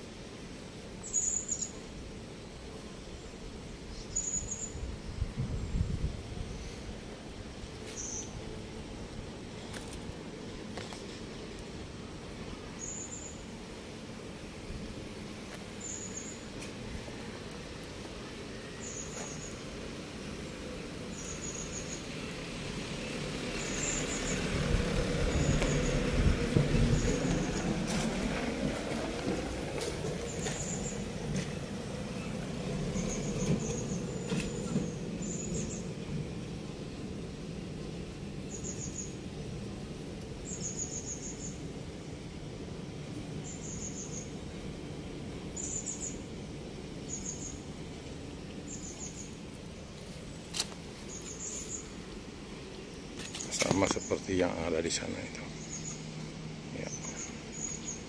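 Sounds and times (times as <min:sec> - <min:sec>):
small bird chirping: 0:01.0 - 0:01.8, 0:03.9 - 0:05.8, 0:07.9 - 0:08.4, 0:12.8 - 0:13.5, 0:15.8 - 0:16.5, 0:18.7 - 0:19.6, 0:21.1 - 0:22.3, 0:38.4 - 0:39.2, 0:40.4 - 0:41.6, 0:43.4 - 0:44.4, 0:45.6 - 0:46.3, 0:47.0 - 0:47.6, 0:48.6 - 0:49.4, 0:51.0 - 0:51.9, 0:55.0 - 0:56.1, 0:56.7 - 0:58.0
vehicle passing: 0:21.8 - 0:35.0.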